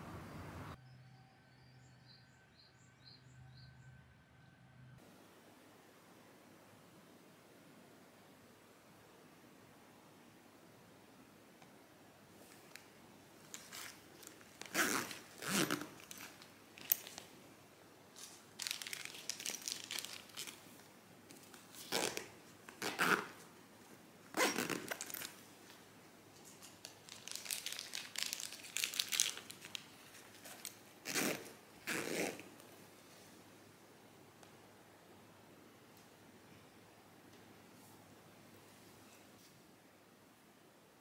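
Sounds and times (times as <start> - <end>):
nylon fabric rustling: 13.4 - 17.3, 18.1 - 25.7, 26.6 - 32.6.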